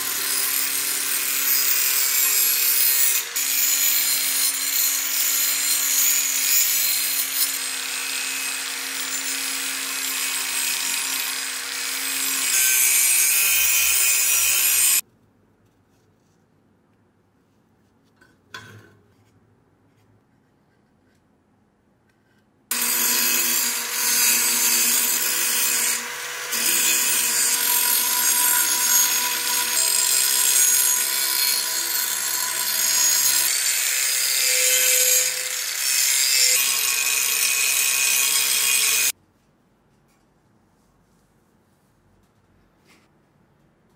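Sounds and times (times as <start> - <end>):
angle grinder grinding steel: 0.0 - 15.0, 22.7 - 39.1.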